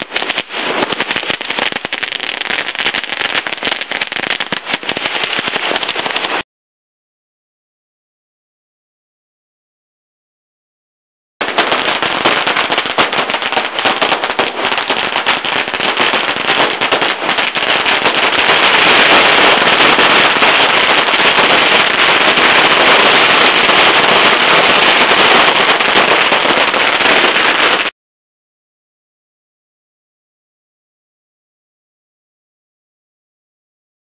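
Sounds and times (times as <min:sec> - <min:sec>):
firework crackling bangs: 0:00.0 - 0:06.4, 0:11.4 - 0:27.9.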